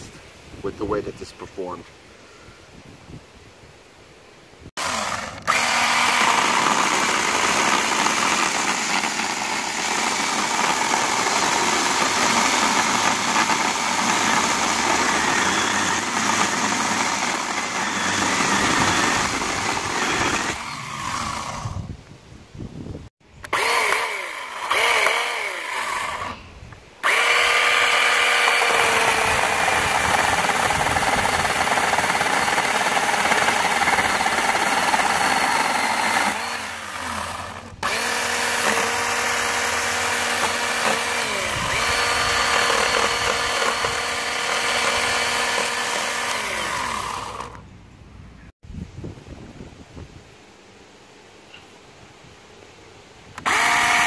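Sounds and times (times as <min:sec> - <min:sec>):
electric chainsaw cutting wood: 0:04.7 - 0:21.9, 0:23.4 - 0:47.7, 0:53.4 - 0:54.0.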